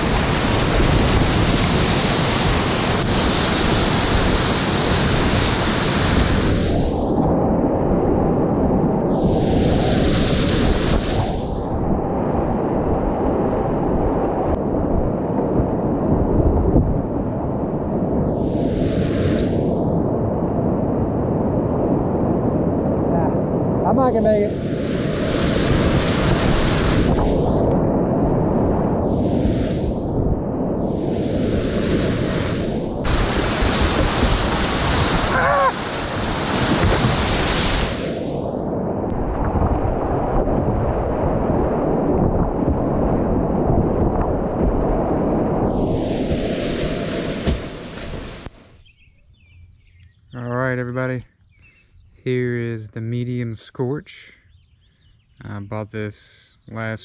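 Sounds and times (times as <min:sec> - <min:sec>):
splashing hiss of waves: 0:00.0 - 0:07.3, 0:09.0 - 0:12.0, 0:18.2 - 0:20.0, 0:23.9 - 0:27.8, 0:29.0 - 0:38.9, 0:45.6 - 0:48.8
wind buffeting microphone: 0:00.0 - 0:53.2.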